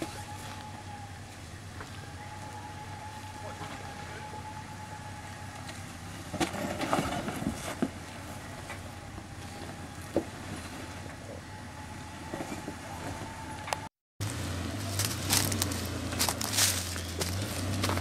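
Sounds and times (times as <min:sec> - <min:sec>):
engine running at low revs: 0:00.0 - 0:18.0.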